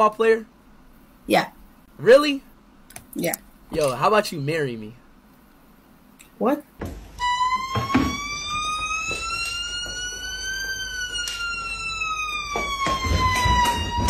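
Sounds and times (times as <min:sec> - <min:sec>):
knocks and bumps: 0:06.8 - 0:10.4.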